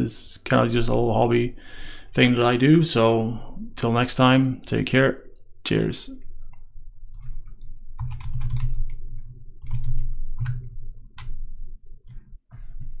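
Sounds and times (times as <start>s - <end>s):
typing on computer keyboard: 7.1s - 11.4s.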